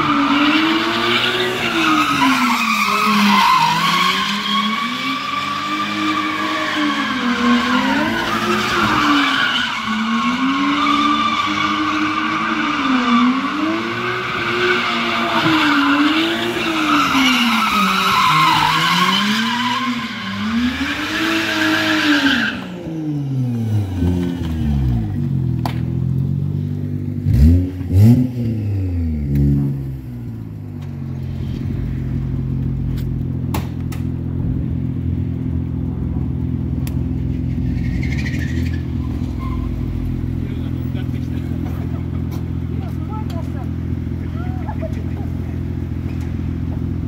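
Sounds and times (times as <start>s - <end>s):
tyre squeal: 0.0s - 22.7s, 37.4s - 43.1s
car engines revving: 0.0s - 47.0s.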